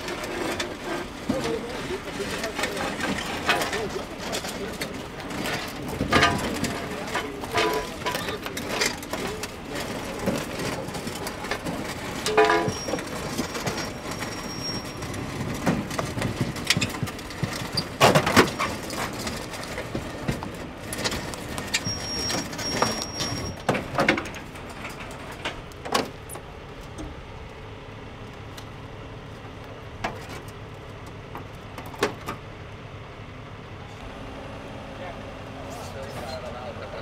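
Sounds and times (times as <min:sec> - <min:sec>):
sheet metal clanking and rattling: 0:00.0 - 0:26.2
low vehicle hum: 0:00.0 - 0:37.0.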